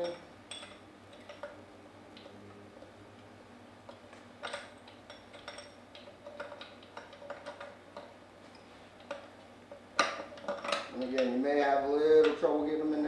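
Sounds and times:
metal parts clicking and clinking: 0.0s - 1.6s, 3.9s - 8.1s, 10.0s - 11.4s.

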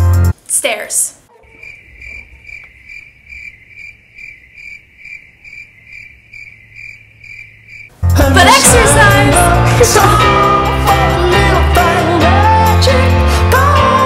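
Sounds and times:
cricket chirping: 1.4s - 8.0s.

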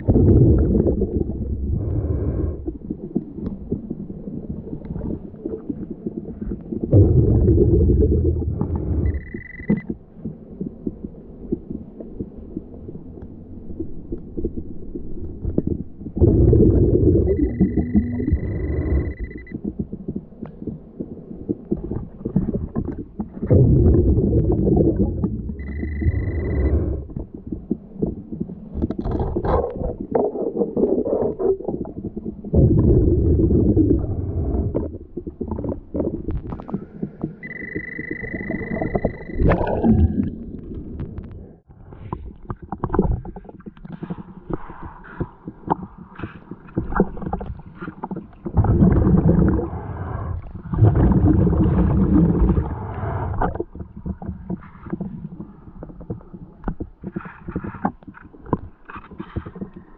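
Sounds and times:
underwater waterfall rumbling and bubbling: 0.0s - 59.9s
high beeps: 9.0s - 9.9s, 17.2s - 19.6s, 25.6s - 27.0s, 37.4s - 39.6s.

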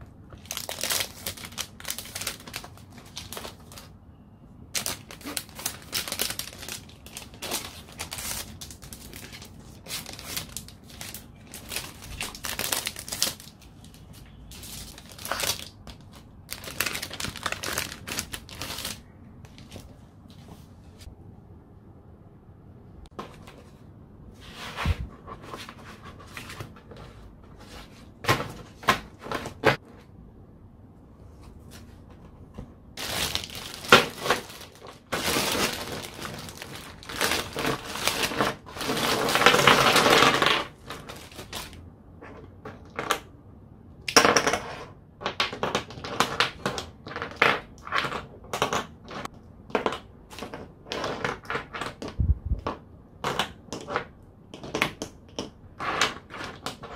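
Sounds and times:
plastic packaging crinkling: 0.3s - 3.9s, 4.8s - 19.9s, 33.0s - 41.8s.

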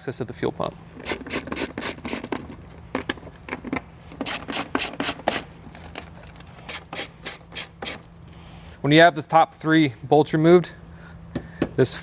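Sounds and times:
hand ratchet clicking: 0.9s - 2.3s, 4.2s - 5.5s, 6.7s - 8.0s.

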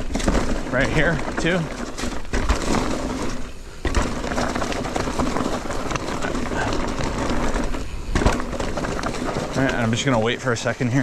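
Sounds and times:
heavy thud: 0.0s - 5.5s
bike tyres and rattling: 0.0s - 11.0s.

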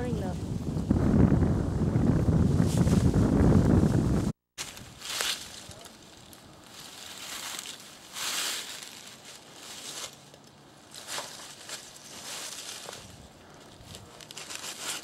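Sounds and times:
footsteps crunching dry leaves: 4.6s - 15.0s.

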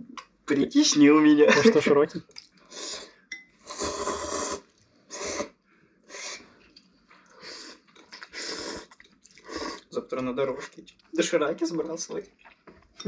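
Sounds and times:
people slurping noodles: 2.7s - 5.5s, 6.1s - 6.5s, 7.2s - 10.0s.

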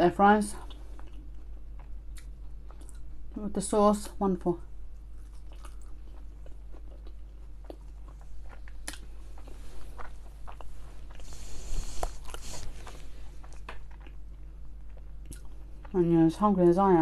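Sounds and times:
chewing with wet mouth clicks: 0.6s - 3.1s, 5.2s - 16.0s
hissing rustle: 11.2s - 13.2s.

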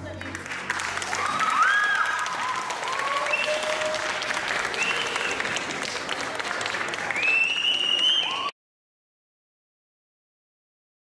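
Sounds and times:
audience applauding: 0.0s - 8.6s
high cheers: 0.8s - 8.6s.

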